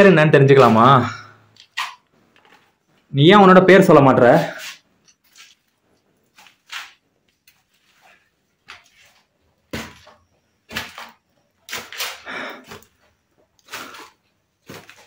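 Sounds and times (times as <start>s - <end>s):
footsteps scuffing on leafy stairs: 13.8s - 15.0s.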